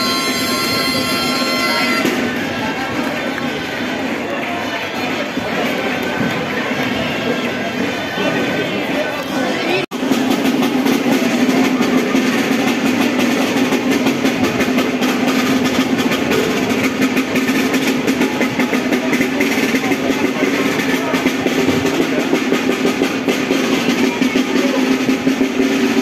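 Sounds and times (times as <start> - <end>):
snare drums playing fast rhythm: 9.9 - 26.0.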